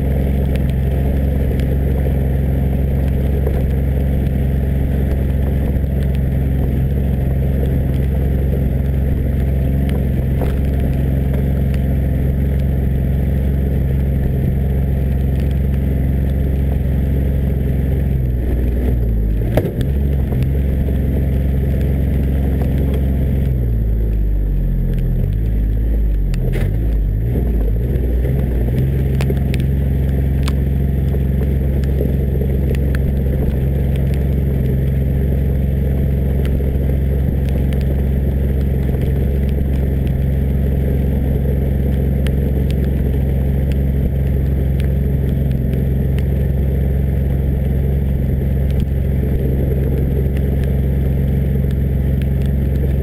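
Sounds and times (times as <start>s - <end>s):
diesel engine running: 0.0s - 53.0s.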